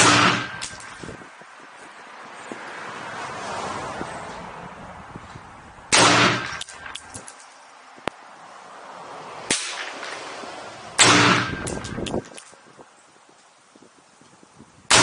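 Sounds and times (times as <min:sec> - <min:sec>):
rifle shot ringing: 0:00.0 - 0:00.8, 0:05.9 - 0:06.9, 0:11.0 - 0:11.9
sharp click: 0:06.4 - 0:08.2, 0:11.0 - 0:12.6.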